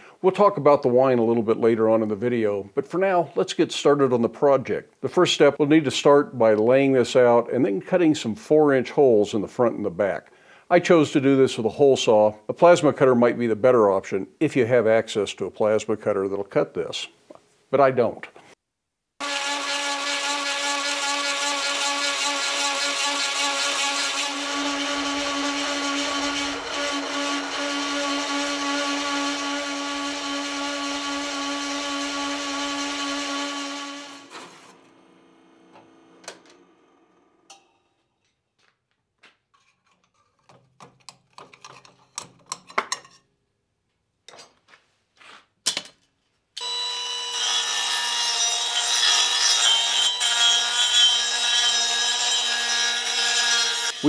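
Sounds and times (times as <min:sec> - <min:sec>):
hole saw cutting steel: 0:19.2 - 0:34.7, 0:46.6 - 0:54.0
die grinder whine: 0:19.2 - 0:37.5.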